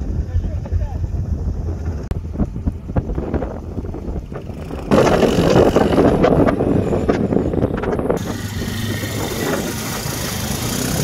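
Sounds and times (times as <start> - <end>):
atv engine rumbling: 0.0 - 11.0
loud rushing noise: 4.4 - 7.1, 8.1 - 11.0.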